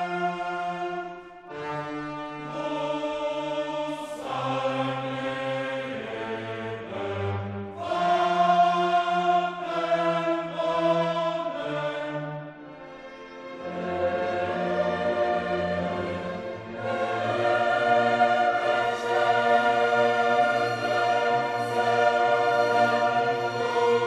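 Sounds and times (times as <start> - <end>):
choir singing: 0.0 - 24.0
orchestra sustained chords: 11.5 - 24.0.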